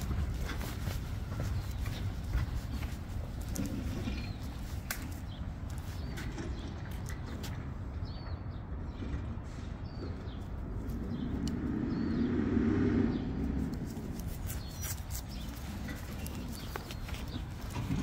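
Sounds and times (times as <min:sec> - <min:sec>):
outdoor background noise: 0:00.0 - 0:18.0
passing vehicle rumble: 0:08.7 - 0:18.0.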